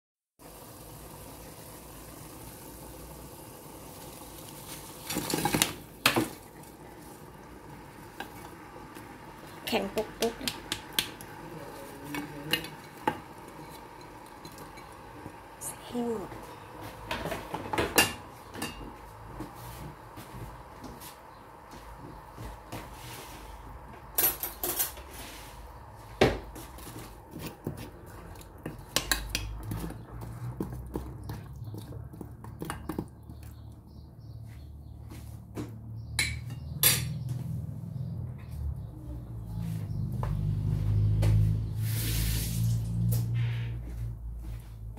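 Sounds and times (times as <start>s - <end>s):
water simmering in pot: 0.4s - 24.2s
spoon knocking metal pot: 10.2s - 11.2s.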